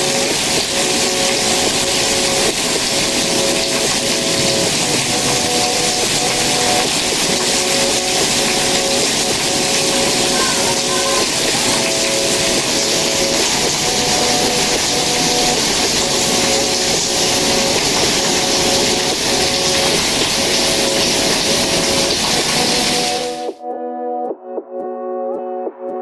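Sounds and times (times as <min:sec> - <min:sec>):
heavy rain pouring: 0:00.0 - 0:23.6
soft background music: 0:00.0 - 0:26.0.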